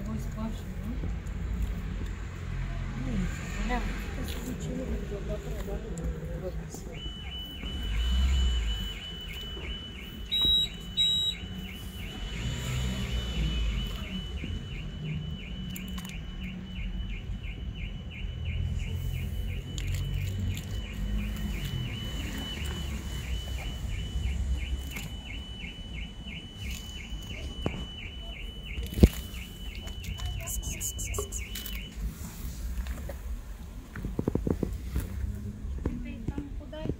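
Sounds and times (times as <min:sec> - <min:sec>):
traffic rumble: 0:00.0 - 0:36.9
loud high beeps: 0:06.9 - 0:32.0
repeating high chirp: 0:23.8 - 0:32.0.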